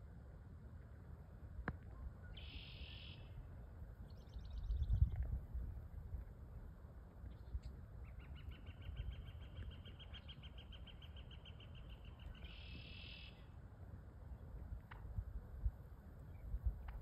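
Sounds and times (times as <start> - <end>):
bird calling with short high notes: 2.2 - 3.4, 8.0 - 13.5.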